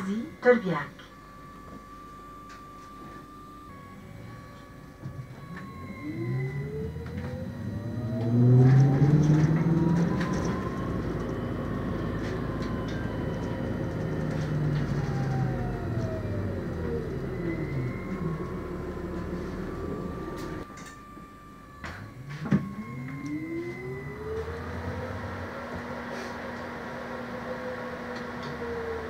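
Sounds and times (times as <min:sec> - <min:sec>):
electric drive whine: 0:00.0 - 0:29.0
low drivetrain rumble: 0:04.0 - 0:20.7, 0:22.0 - 0:29.0
road noise: 0:06.0 - 0:20.6.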